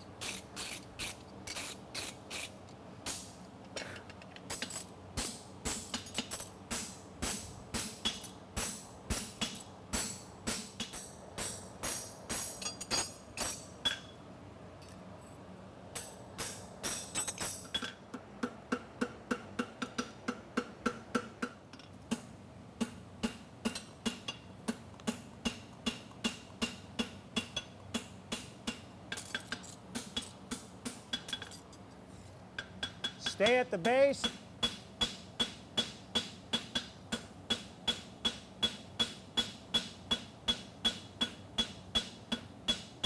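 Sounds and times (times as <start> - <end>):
hammer striking horseshoe on anvil: 5.2 - 14.2, 16.0 - 22.2, 22.8 - 31.6, 32.6 - 43.0.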